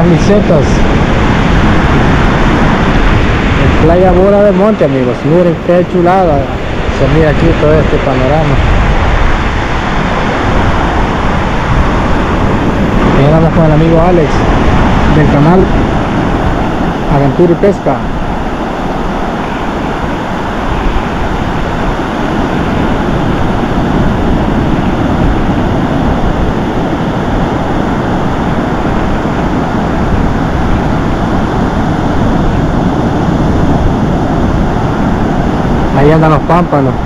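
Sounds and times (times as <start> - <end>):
ocean surf breaking on beach: 0.0 - 37.0
wind rumbling on microphone: 0.0 - 37.0.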